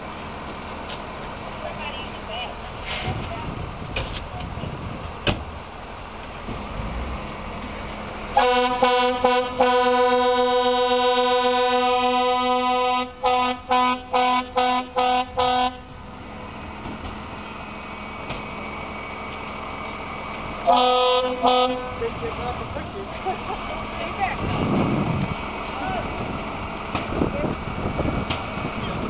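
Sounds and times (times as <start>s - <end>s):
fire engine air horn blasts: 8.3s - 16.0s, 20.6s - 22.1s.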